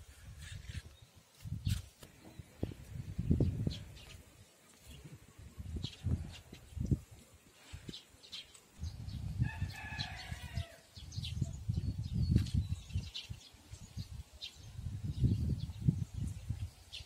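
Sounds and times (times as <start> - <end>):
wind rumble on microphone: 0.0 - 8.1, 8.8 - 17.0
rooster crowing: 9.4 - 10.9.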